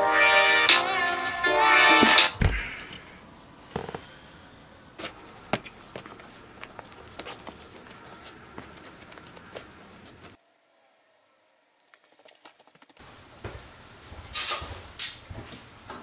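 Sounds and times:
shoelaces rustling: 0:05.0 - 0:10.4, 0:11.9 - 0:13.0.

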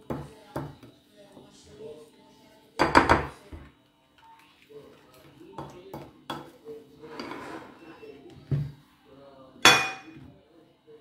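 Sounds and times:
utensil scraping: 0:07.0 - 0:08.2
utensils clinking against dishes: 0:09.6 - 0:10.2
utensil clinking on ceramic plate: 0:09.7 - 0:10.2.

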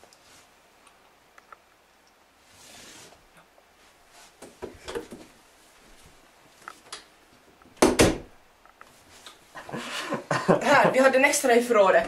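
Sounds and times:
faint shuffling: 0:02.4 - 0:06.9
door shutting with double thump: 0:07.8 - 0:08.3.

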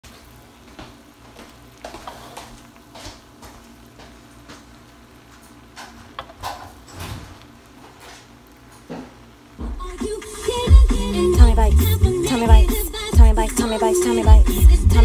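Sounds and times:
spatula scraping a wok: 0:02.0 - 0:02.4
low steady hum: 0:03.6 - 0:15.0.

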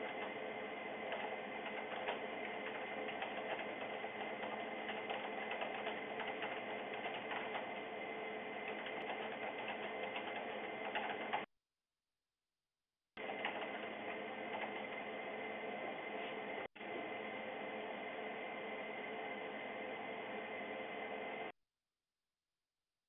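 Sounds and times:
rapid keyboard typing: 0:00.0 - 0:00.4, 0:01.0 - 0:07.9, 0:08.6 - 0:11.5, 0:13.2 - 0:15.0
room hum: 0:00.0 - 0:11.5, 0:13.2 - 0:21.6.

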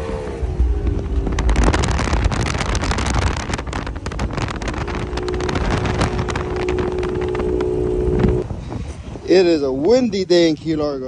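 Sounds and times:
hull spray: 0:00.0 - 0:09.1
wind buffeting microphone: 0:00.0 - 0:11.0
outboard motor running: 0:00.6 - 0:08.4.

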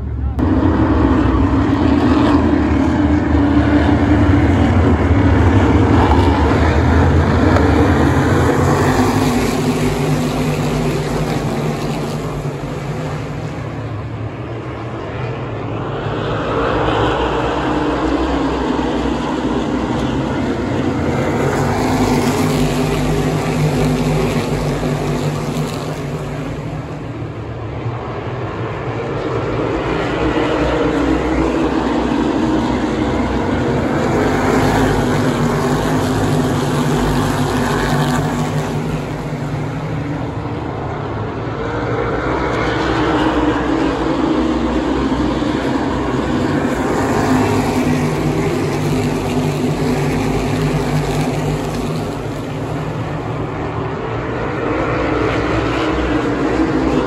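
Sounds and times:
race car engines droning: 0:00.0 - 0:57.0.

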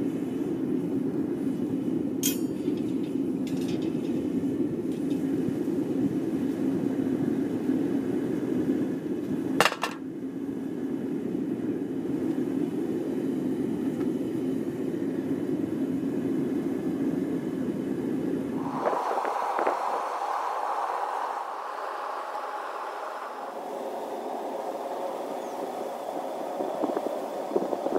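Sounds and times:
furnace burner roaring: 0:00.0 - 0:27.9
sharp metallic clink: 0:02.2 - 0:02.8
high-pitched hiss: 0:18.6 - 0:27.9.

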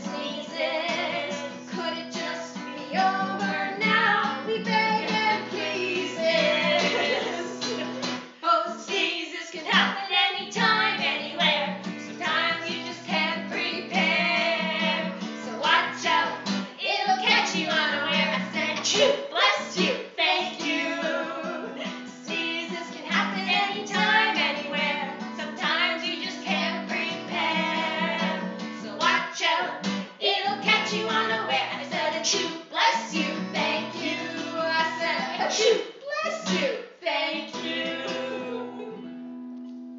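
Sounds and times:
women singing: 0:00.0 - 0:39.1
strummed acoustic guitar: 0:00.0 - 0:39.9.

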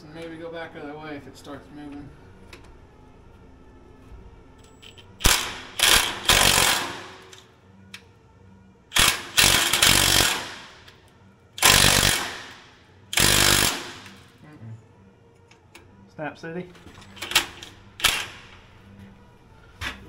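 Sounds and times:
impact wrench hammering: 0:13.2 - 0:14.2.

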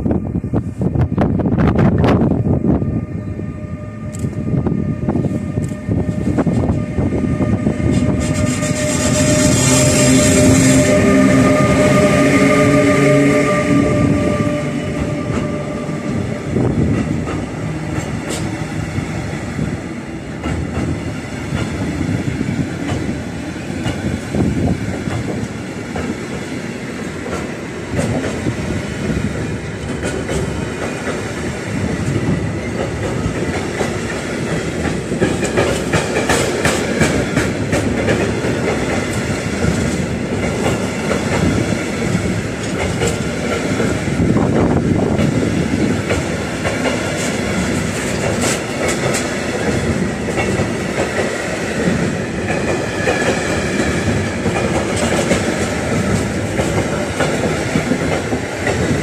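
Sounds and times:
train wagons rumbling past: 0:00.0 - 0:59.0
wheels clacking over rail joints: 0:14.5 - 0:19.4, 0:20.2 - 0:28.8, 0:29.4 - 0:59.0.

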